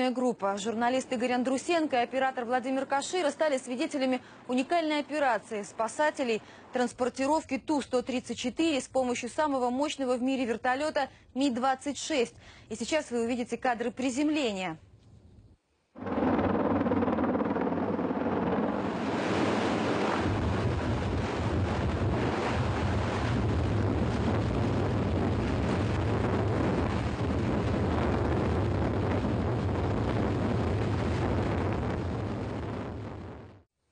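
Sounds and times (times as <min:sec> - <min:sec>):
helicopter rotor and engines: 0:16.0 - 0:20.2
wind buffeting microphone: 0:16.0 - 0:33.4.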